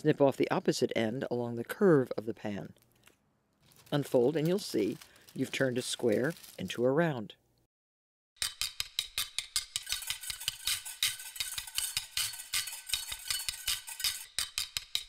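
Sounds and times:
music with clicking percussion beat: 8.4 - 15.0.

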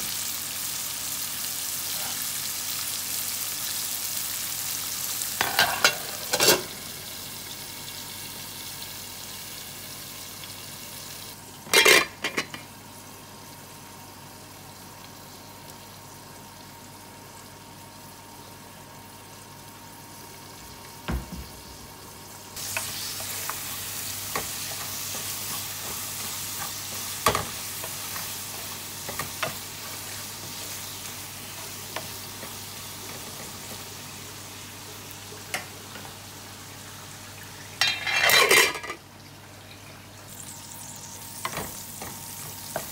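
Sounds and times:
onions sizzling in oil: 0.0 - 42.9
spoon scraping a pot: 37.8 - 38.8.

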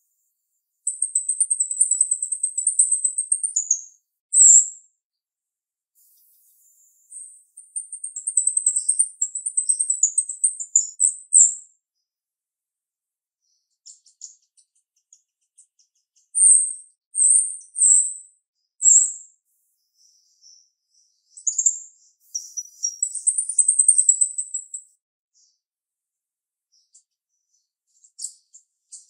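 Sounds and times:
high bird trill: 0.9 - 4.7, 6.1 - 11.6, 21.4 - 24.9
loud whistled bird notes: 0.9 - 4.7, 16.4 - 18.2, 21.4 - 24.9.

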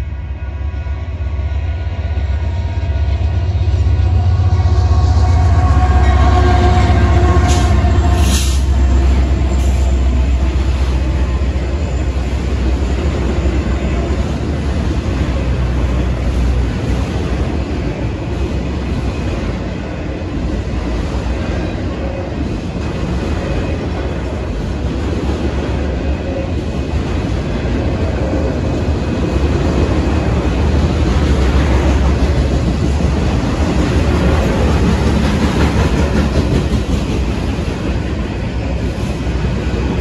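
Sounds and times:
locomotive engine rumble: 1.0 - 25.2
train wheel noise: 1.1 - 40.0.

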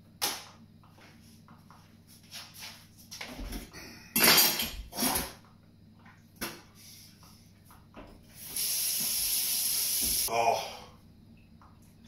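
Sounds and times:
person spitting into sink: 4.9 - 5.4.

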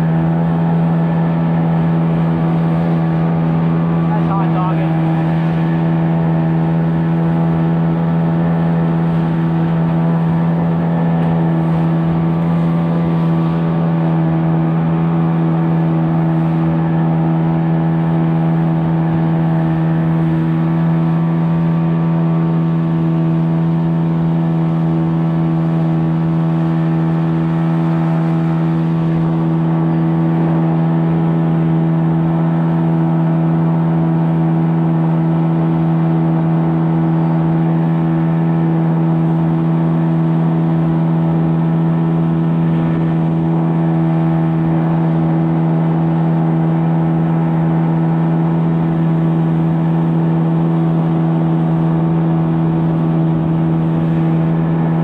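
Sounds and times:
engine running steadily: 0.0 - 55.0.

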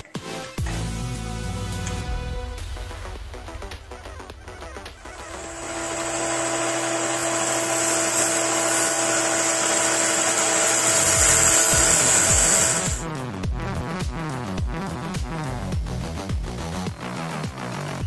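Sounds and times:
small electric tool whirring: 5.2 - 13.0
electronic music with bass beat: 13.0 - 18.0.

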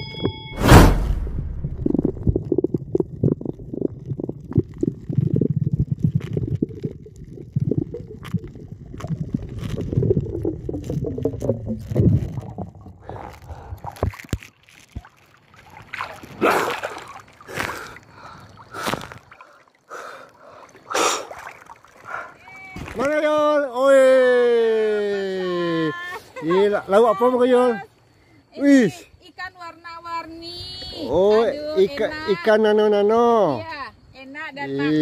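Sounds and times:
underwater gurgling and sloshing: 0.1 - 22.4
shallow water splashes: 1.6 - 23.3.

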